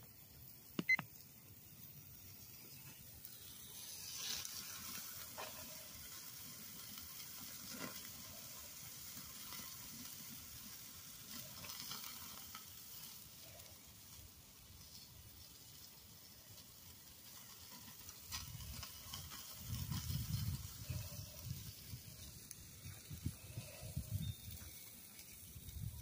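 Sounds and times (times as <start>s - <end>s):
sharp pops and crackles: 0.0s - 1.6s, 16.4s - 23.8s
steaks sizzling on a grill: 0.1s - 26.0s.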